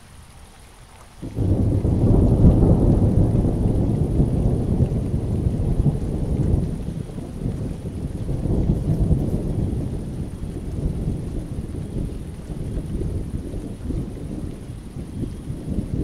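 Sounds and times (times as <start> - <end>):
rain falling: 0.0 - 16.0
thunder rolling: 1.2 - 16.0.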